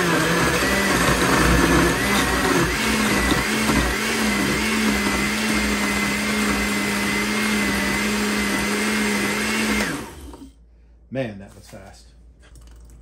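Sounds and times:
blender motor whining: 0:00.0 - 0:10.6.

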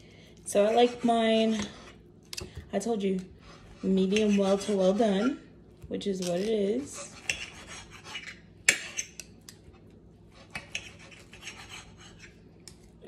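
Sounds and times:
knife scraping on a plate: 0:03.4 - 0:05.5, 0:06.8 - 0:09.3, 0:10.3 - 0:12.5.

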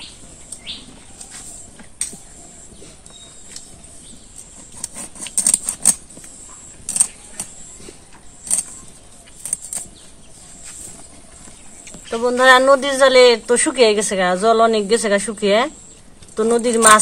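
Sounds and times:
knife scraping fish scales: 0:04.4 - 0:06.0.

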